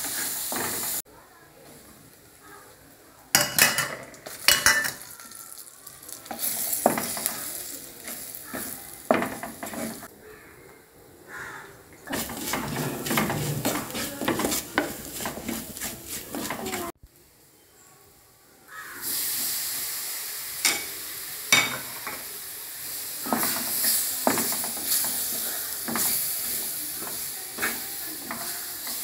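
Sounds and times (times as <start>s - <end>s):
spices sizzling in oil: 0.0s - 1.0s, 3.3s - 10.1s, 12.0s - 17.5s, 18.7s - 29.0s
wooden spatula scraping clay pot: 12.1s - 17.0s.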